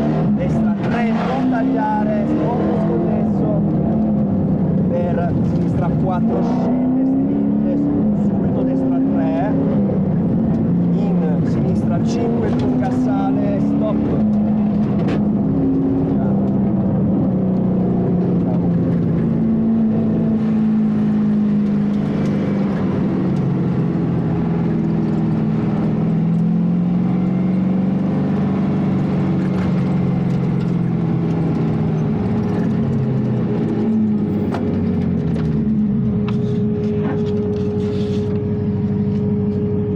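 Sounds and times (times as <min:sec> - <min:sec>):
car engine running at low revs: 0:00.0 - 0:39.9.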